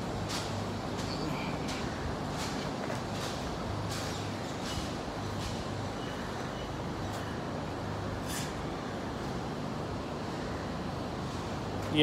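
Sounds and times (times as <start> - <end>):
rushing background noise: 0.0 - 12.0
steady low hum: 0.0 - 12.0.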